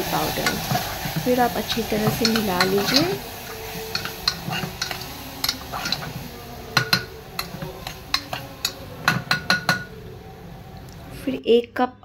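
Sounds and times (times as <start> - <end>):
metal spoon clinking in pot: 1.8 - 3.2, 3.9 - 6.1, 6.8 - 10.0.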